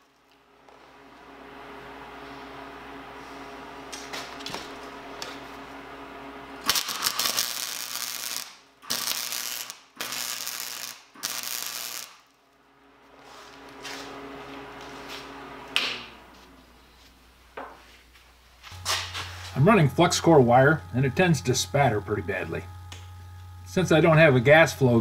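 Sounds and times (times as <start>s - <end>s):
steady hum: 0.0s - 25.0s
welder arc bursts: 3.7s - 12.4s, 18.7s - 25.0s
welding wire spatter: 6.6s - 12.4s.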